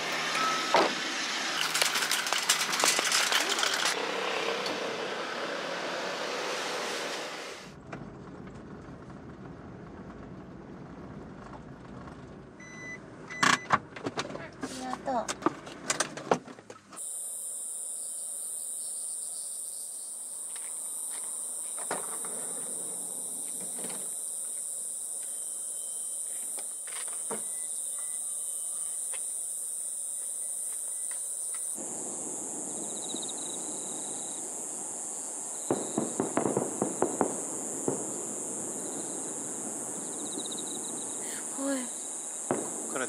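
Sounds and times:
insects singing: 17.0 - 43.0.

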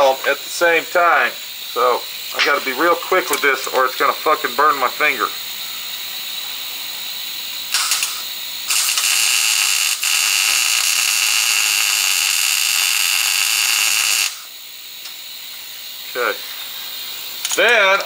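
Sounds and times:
welder arc crackling: 7.7 - 15.2.

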